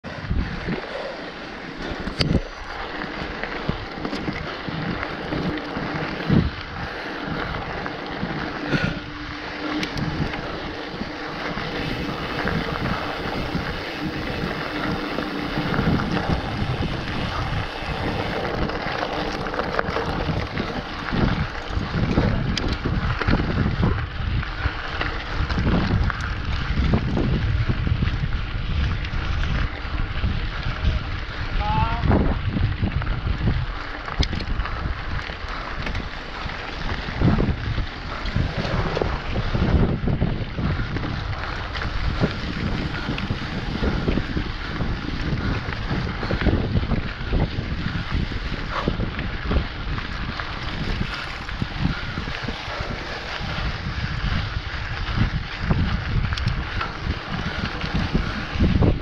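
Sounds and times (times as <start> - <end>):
tyres on gravel: 0.0 - 59.0
wind buffeting microphone: 0.0 - 59.0
bike knocks and rattles: 1.6 - 28.0.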